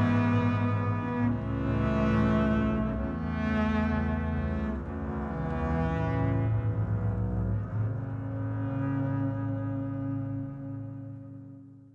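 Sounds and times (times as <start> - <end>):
background music with low notes: 0.0 - 11.9.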